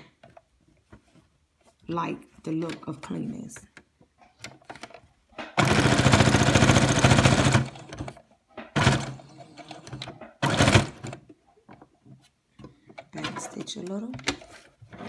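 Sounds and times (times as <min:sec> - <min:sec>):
sewing machine stitching: 0:05.6 - 0:08.2, 0:08.8 - 0:11.2.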